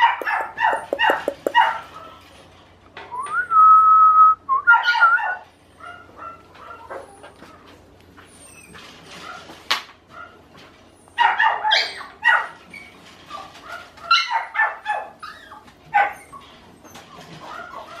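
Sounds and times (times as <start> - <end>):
puppy yapping and whining: 0.0 - 2.1, 4.7 - 10.4, 11.0 - 18.0.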